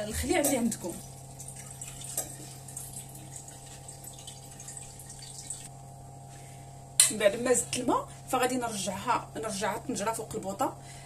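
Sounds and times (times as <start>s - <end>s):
low steady hum: 0.0s - 11.0s
water pouring into a metal pot: 0.2s - 5.7s.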